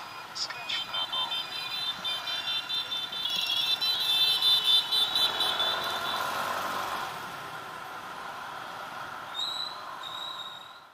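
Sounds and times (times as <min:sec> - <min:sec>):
street traffic: 0:00.0 - 0:10.9
rapid electronic beeping: 0:00.1 - 0:03.8.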